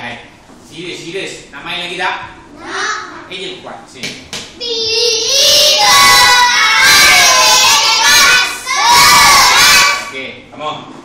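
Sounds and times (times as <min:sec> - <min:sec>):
children calling out together: 0:04.6 - 0:10.2.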